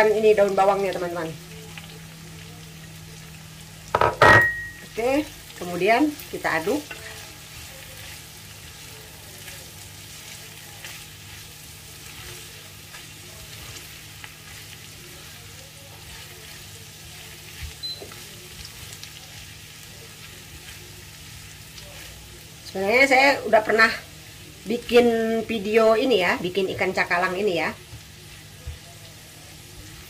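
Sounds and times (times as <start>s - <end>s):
faint sizzle: 0.0s - 30.0s
spatula knock: 4.0s - 4.7s
spatula scraping pan: 6.4s - 19.0s.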